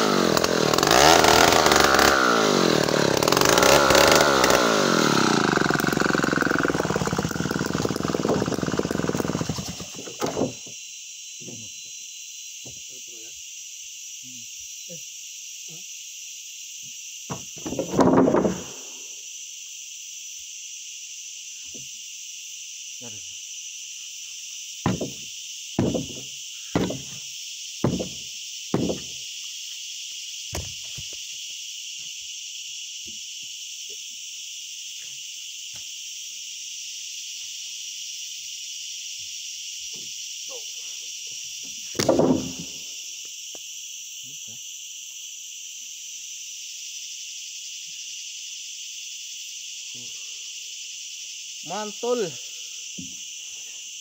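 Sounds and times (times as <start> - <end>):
insect chorus: 0.0 - 54.0
heavy wooden thuds: 17.3 - 18.8, 24.9 - 27.2, 27.8 - 29.2, 42.0 - 42.8.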